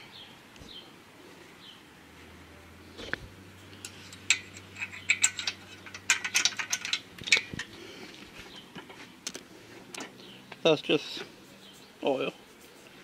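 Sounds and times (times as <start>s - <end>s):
metallic clicks and clanks: 3.8s - 7.8s.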